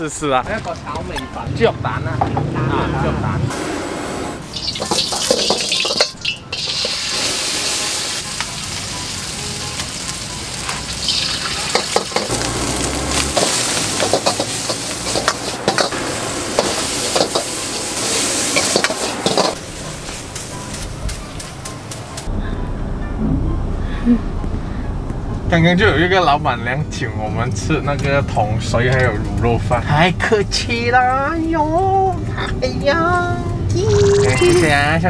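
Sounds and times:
food sizzling in a wok: 4.4 - 21.1
metal ladle scraping a wok: 13.3 - 19.6.

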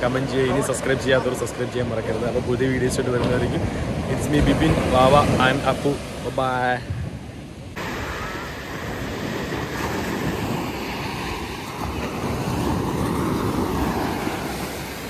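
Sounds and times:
wind buffeting microphone: 6.7 - 15.0
surf breaking on sandy beach: 7.8 - 15.0.

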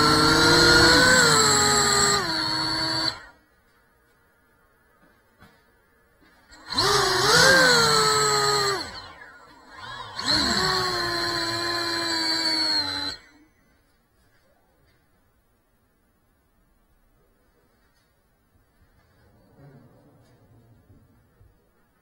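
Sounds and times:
drone motors whining: 0.0 - 3.4, 6.5 - 13.9.

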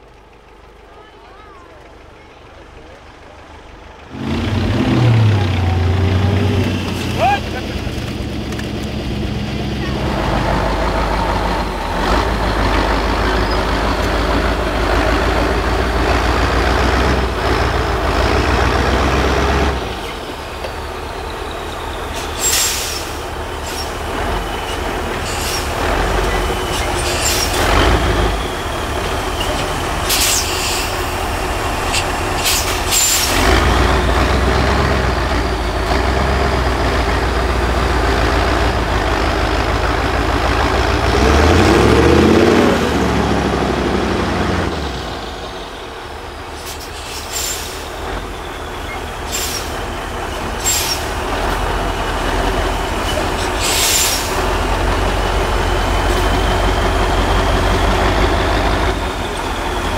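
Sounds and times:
diesel truck engine under load: 0.0 - 59.9
air brake hisses: 22.1 - 24.0, 24.6 - 25.8, 26.6 - 27.6, 29.3 - 31.2, 31.9 - 33.4, 46.6 - 48.0, 49.2 - 49.8, 50.6 - 51.2, 53.0 - 54.4.

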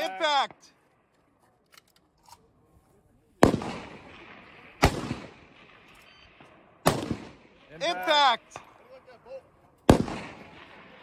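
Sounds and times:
rifle shots with echo: 3.4 - 8.9, 9.8 - 11.0.

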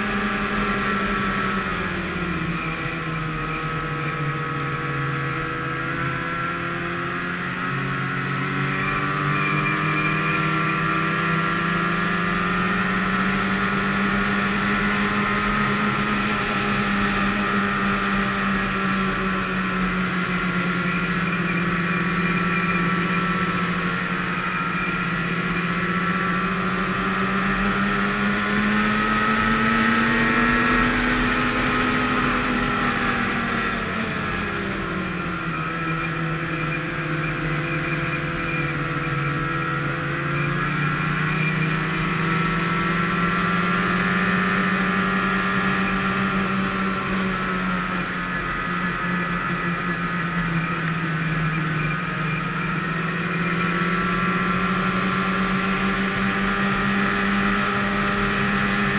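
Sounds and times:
snowmobile engine running: 0.0 - 58.9.

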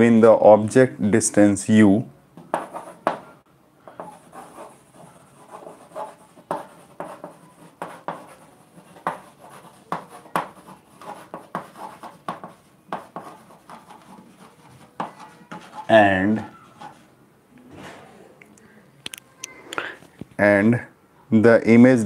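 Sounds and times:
chalk tapping and scratching: 2.4 - 3.3, 3.9 - 17.1.

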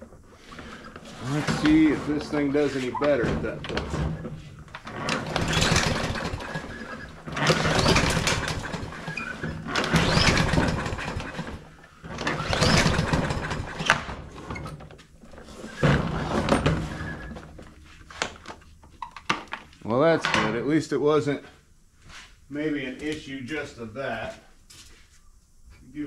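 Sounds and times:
mower engine cranking: 0.5 - 17.6.

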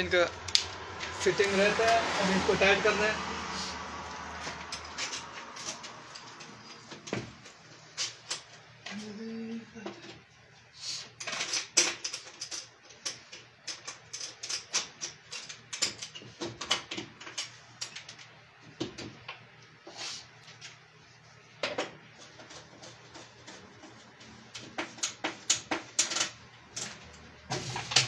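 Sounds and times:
hand tool clicking and scraping: 4.1 - 6.9.

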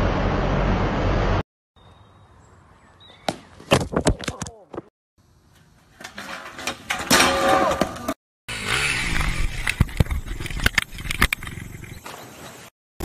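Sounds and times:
skateboard scraping on metal rail: 5.6 - 11.9.

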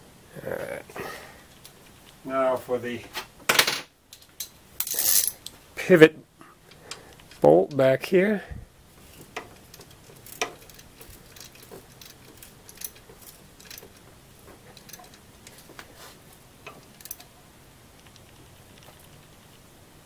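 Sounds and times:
wrench clicking on metal bolt: 9.1 - 14.0, 14.6 - 15.7, 16.6 - 17.3.

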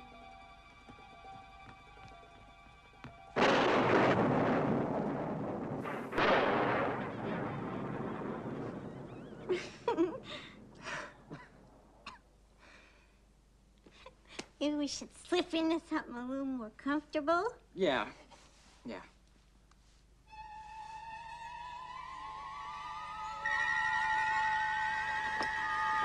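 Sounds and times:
faint music: 0.0 - 3.8
loud blast with long rush: 3.4 - 11.3.

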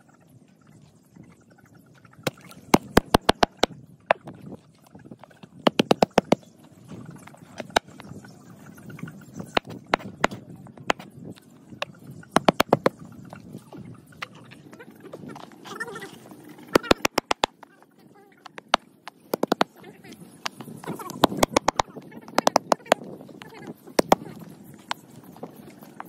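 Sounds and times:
cleaver chopping on cutting board: 5.7 - 6.4, 16.8 - 17.5.

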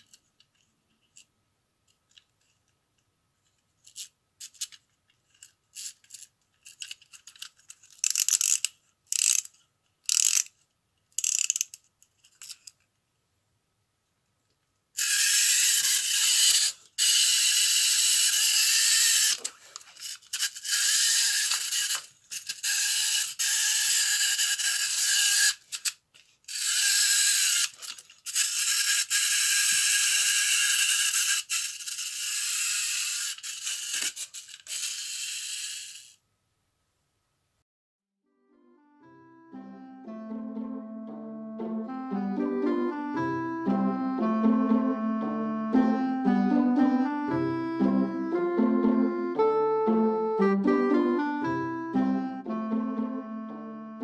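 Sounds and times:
wind-up key ratcheting: 3.8 - 10.6, 11.2 - 12.7, 15.0 - 19.4, 20.0 - 36.2
high-pitched spring motor whirr: 15.0 - 25.9, 26.5 - 36.2.

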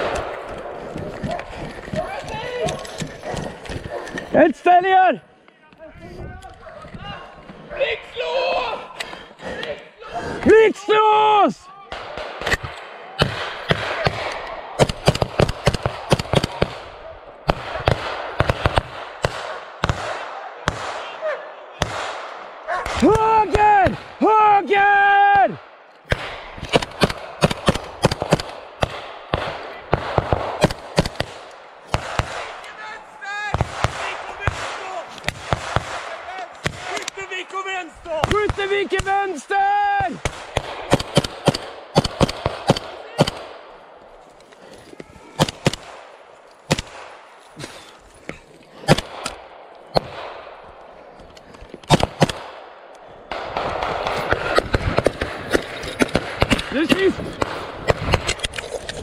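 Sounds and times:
rifle shots echoing: 0.0 - 4.4, 11.9 - 24.2, 25.6 - 32.8, 33.5 - 37.3, 40.0 - 44.2, 45.3 - 47.5, 48.7 - 51.2, 51.8 - 58.4
rustling of movement: 0.0 - 4.7, 40.3 - 59.0.

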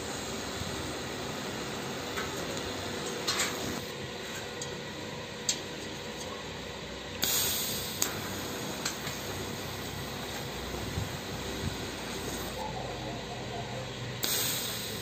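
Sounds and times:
welding hiss: 0.0 - 3.9, 7.2 - 12.6, 14.1 - 15.0.

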